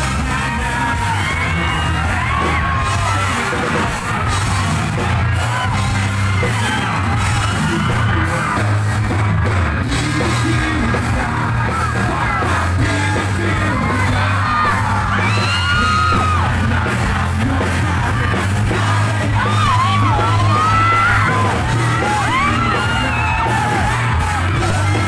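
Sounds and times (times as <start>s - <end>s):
heavy bass line: 0.0s - 25.0s
live rock band playing: 0.0s - 25.0s
people singing and yelling: 0.0s - 25.0s.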